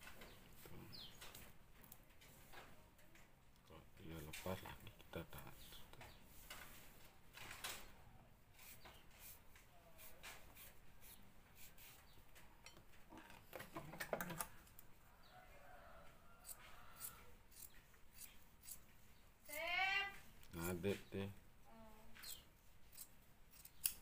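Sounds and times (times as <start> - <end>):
small clicks of scissors: 23.0 - 24.0.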